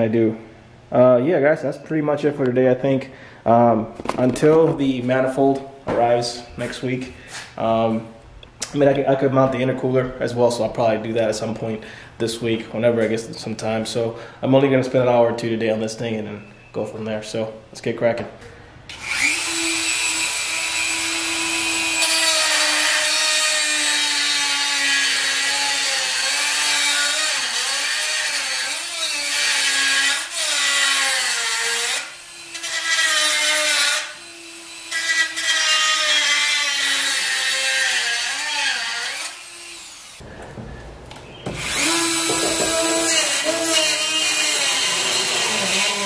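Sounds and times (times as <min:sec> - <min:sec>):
grinder cutting through metal: 0:18.9 - 0:40.2, 0:41.6 - 0:46.0.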